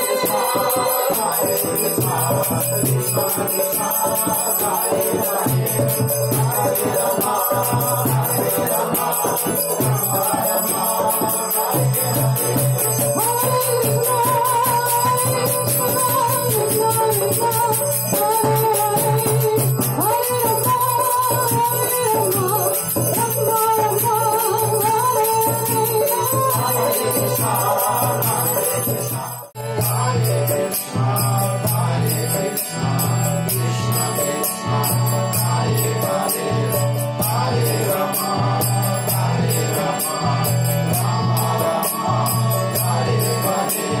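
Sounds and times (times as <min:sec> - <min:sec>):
voices chanting: 0:00.0 - 0:13.8, 0:26.3 - 0:44.0.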